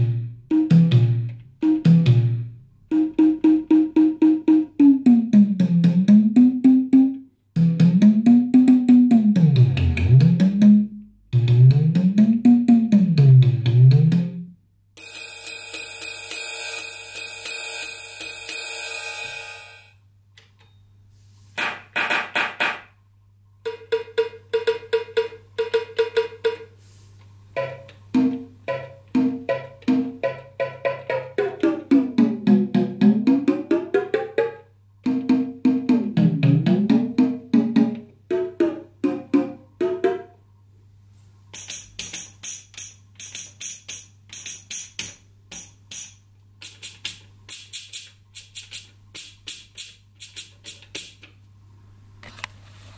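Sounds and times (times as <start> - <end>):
drum machine hits: 0.0 - 14.4, 21.6 - 22.9, 23.7 - 26.7, 27.6 - 34.4, 35.1 - 40.2, 41.6 - 51.2
ringing cymbal: 15.0 - 20.0.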